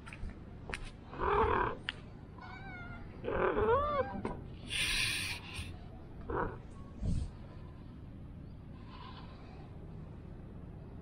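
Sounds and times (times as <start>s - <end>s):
cat meowing: 2.4s - 4.3s
hiss-like noise burst: 4.7s - 5.7s.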